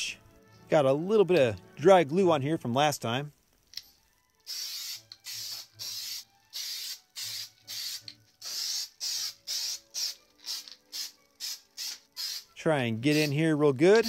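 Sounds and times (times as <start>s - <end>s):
aerosol can spraying: 4.4s - 14.0s.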